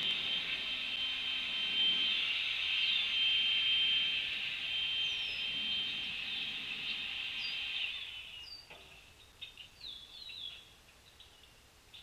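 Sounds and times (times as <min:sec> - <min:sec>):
quiet bird chips: 0:05.0 - 0:12.0.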